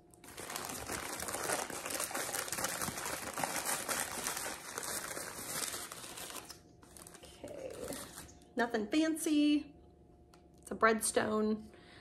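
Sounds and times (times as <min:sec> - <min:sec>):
wrapping crinkling and rustling: 0:00.1 - 0:08.4.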